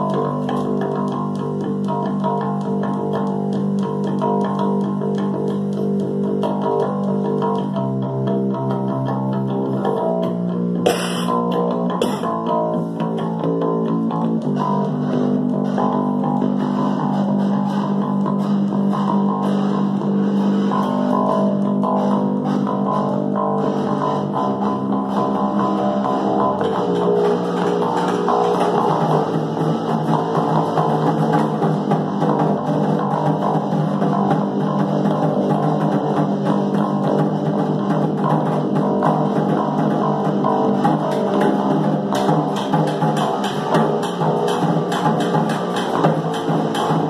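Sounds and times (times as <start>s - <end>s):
electric bass: 0.0s - 47.0s
electric guitar rock riff: 0.0s - 47.0s
snare drum struck with sticks: 10.9s - 12.3s.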